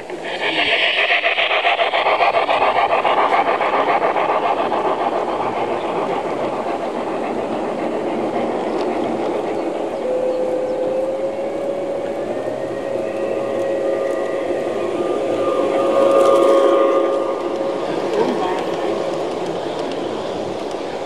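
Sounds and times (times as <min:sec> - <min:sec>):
model train wheels clattering on rails: 0:00.0 - 0:09.8, 0:16.0 - 0:21.0.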